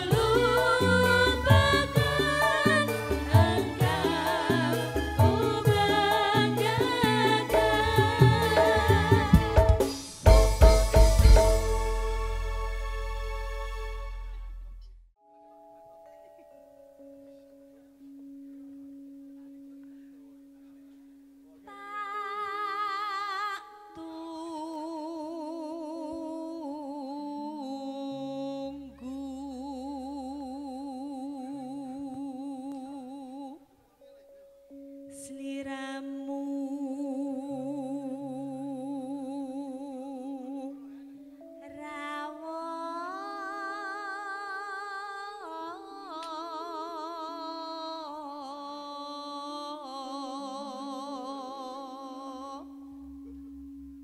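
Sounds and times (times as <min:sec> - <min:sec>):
person singing with vibrato: 0:00.0 - 0:12.3, 0:21.7 - 0:33.8, 0:35.0 - 0:53.4
gamelan accompaniment: 0:00.0 - 0:21.2.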